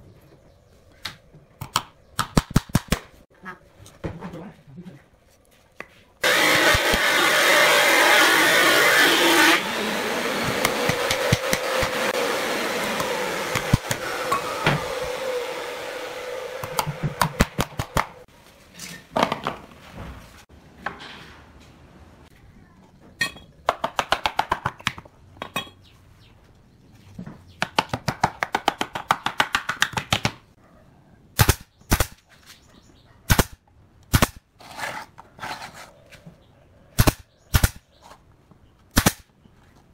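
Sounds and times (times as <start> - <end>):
nail gun shots: 31.4 - 32.2, 33.3 - 34.4, 37.0 - 37.8, 38.9 - 39.3.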